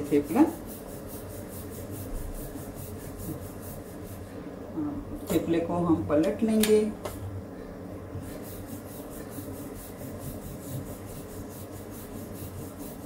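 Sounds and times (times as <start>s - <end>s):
rolling pin rubbing on dough: 0.0s - 4.4s, 8.1s - 13.0s.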